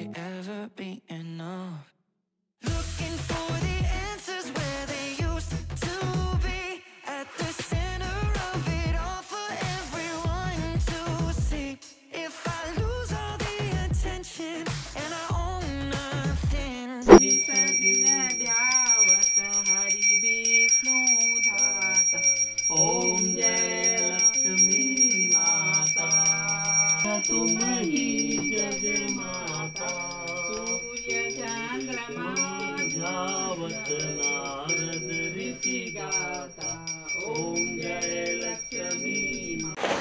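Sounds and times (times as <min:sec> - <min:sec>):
hand bell ringing: 0:17.1 - 0:39.8
voices singing a hymn: 0:17.1 - 0:39.8.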